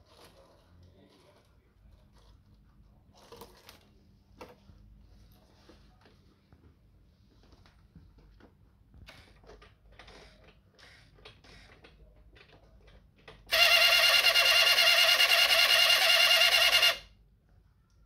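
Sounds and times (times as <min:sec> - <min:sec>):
toy truck buzzing: 0:13.4 - 0:17.1.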